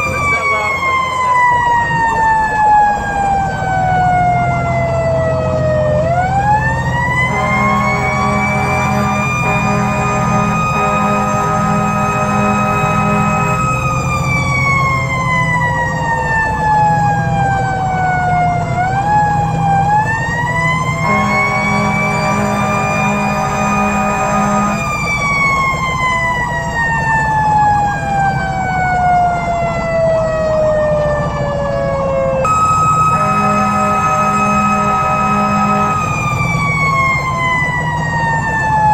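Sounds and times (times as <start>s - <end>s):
mechanical siren wailing: 0.0s - 38.9s
steady high tone: 7.2s - 14.6s, 20.9s - 25.8s, 32.4s - 37.8s
low pulsing tone: 32.4s - 37.5s.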